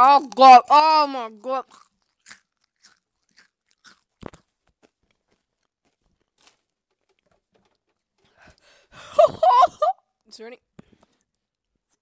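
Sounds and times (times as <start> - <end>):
chewing crunchy snacks: 0.0 - 8.6.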